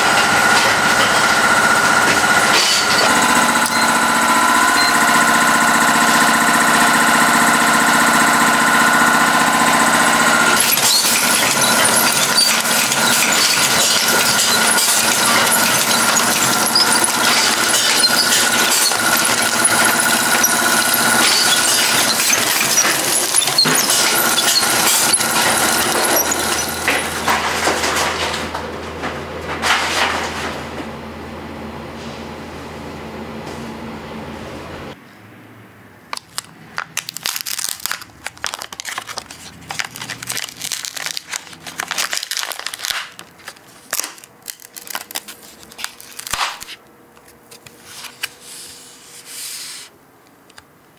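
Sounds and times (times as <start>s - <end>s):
packaging machine clattering: 0.0s - 7.2s, 9.4s - 30.8s, 36.2s - 46.8s
machinery humming whine: 0.0s - 35.8s.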